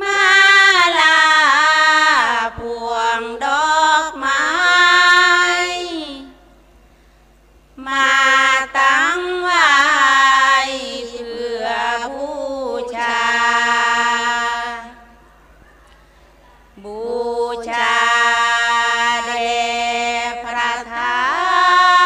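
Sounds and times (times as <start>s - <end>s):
women singing long held notes: 0.0s - 6.5s, 7.8s - 15.4s, 16.8s - 22.0s.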